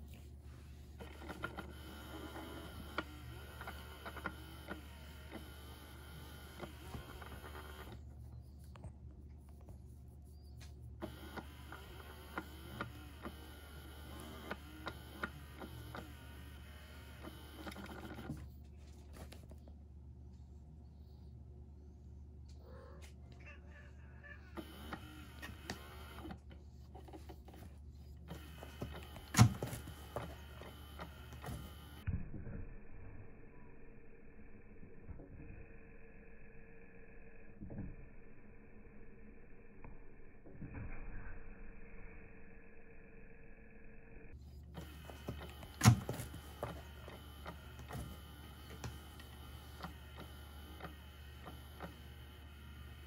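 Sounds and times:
electric toy humming: 0:01.0 - 0:08.1, 0:11.0 - 0:18.4, 0:24.2 - 0:27.6, 0:41.8 - 0:53.0
small electric motor whirring: 0:11.0 - 0:18.2
clicks: 0:24.5 - 0:27.7.

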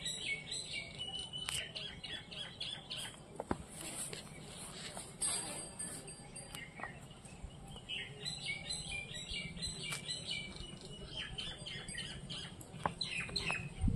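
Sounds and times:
birds chirping: 0:00.0 - 0:13.9.

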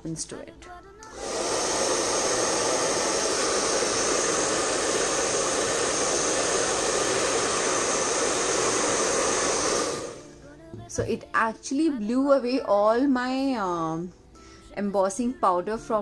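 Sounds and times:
hair dryer whirring: 0:01.0 - 0:10.4.

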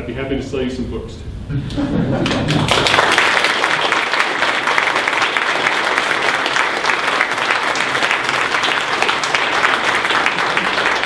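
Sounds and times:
audience applauding: 0:02.2 - 0:11.0.

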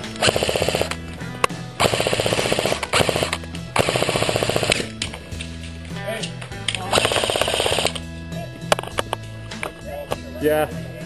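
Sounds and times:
airsoft rifle firing bursts: 0:00.2 - 0:01.0, 0:01.8 - 0:04.9, 0:06.9 - 0:08.0.

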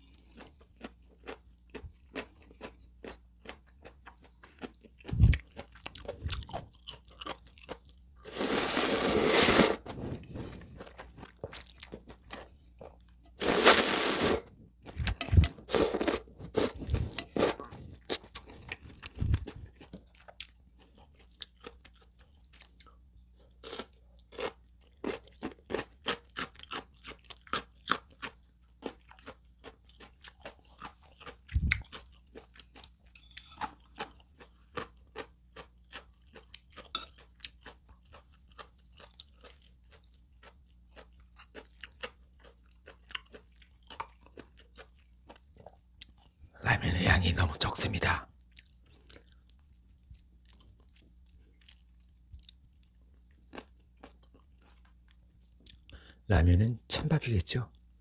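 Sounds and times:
crunching and chewing: 0:00.0 - 0:08.5, 0:09.8 - 0:14.0, 0:14.8 - 0:46.5, 0:48.0 - 0:56.3
noodle slurping: 0:08.3 - 0:10.8, 0:13.4 - 0:17.8.

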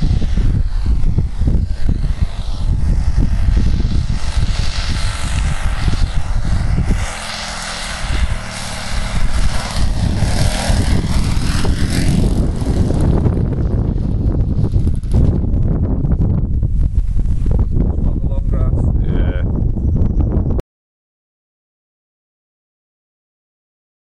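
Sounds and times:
model aircraft engine droning: 0:00.0 - 0:20.6
wind rumble on microphone: 0:00.0 - 0:20.6.

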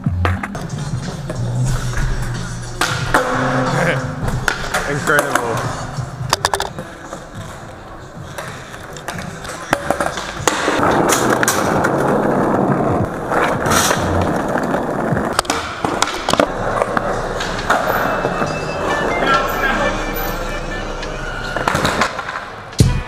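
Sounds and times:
skateboard wheels rolling on concrete: 0:00.0 - 0:22.9
skateboard clacking on ground: 0:02.8 - 0:18.6.

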